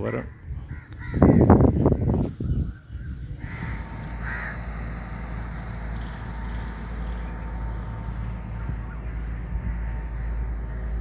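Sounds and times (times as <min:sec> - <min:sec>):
steady low rumble: 0:00.0 - 0:11.0
crow cawing: 0:00.7 - 0:01.7, 0:03.4 - 0:05.0.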